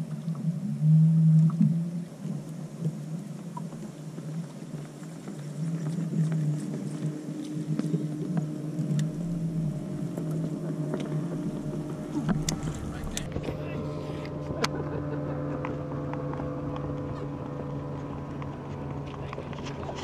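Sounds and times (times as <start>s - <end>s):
boat motor humming: 0.0s - 20.0s.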